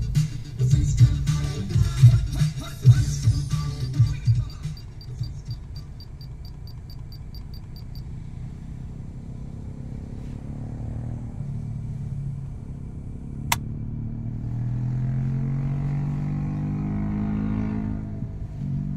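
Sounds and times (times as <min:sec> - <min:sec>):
car engine idling: 0:00.0 - 0:10.6.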